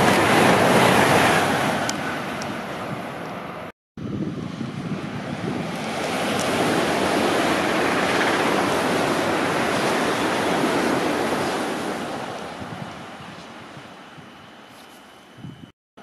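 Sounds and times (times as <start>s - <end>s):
train passing at speed: 0.0s - 15.7s.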